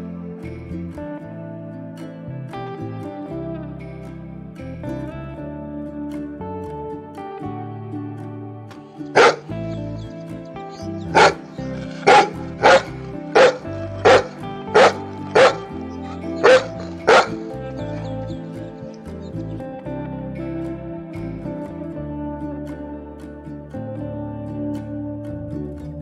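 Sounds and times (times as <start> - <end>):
background music: 0.0 - 26.0
large dog barking: 9.2 - 9.4, 11.0 - 17.5.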